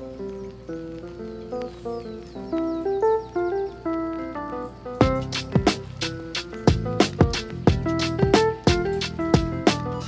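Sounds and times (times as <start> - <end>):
backing track with drum beat: 5.0 - 10.0.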